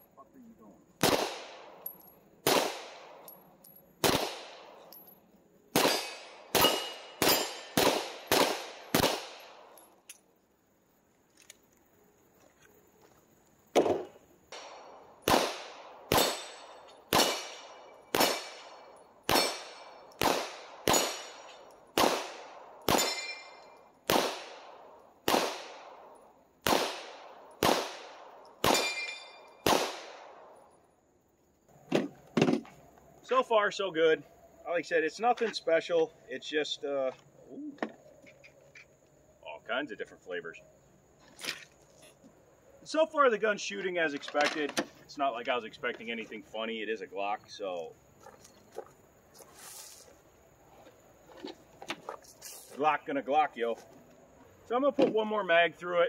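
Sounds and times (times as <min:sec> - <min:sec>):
pistol shots: 0:01.0 - 0:03.3, 0:04.0 - 0:04.9, 0:05.7 - 0:09.8, 0:13.8 - 0:30.6
bullets ringing on steel targets: 0:05.8 - 0:07.8, 0:16.1 - 0:20.3, 0:20.9 - 0:21.8, 0:22.9 - 0:23.8, 0:28.6 - 0:29.6.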